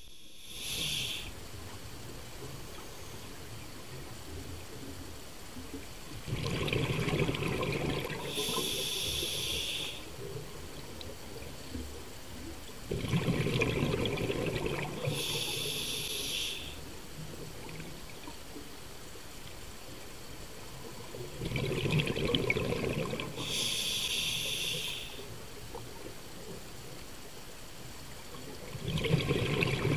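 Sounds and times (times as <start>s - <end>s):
regulator hissing: 0.0s - 1.4s, 8.3s - 10.1s, 15.0s - 16.8s, 23.4s - 25.3s
exhaust bubbles rumbling: 6.2s - 8.6s, 12.8s - 15.2s, 21.2s - 23.5s, 28.5s - 29.9s.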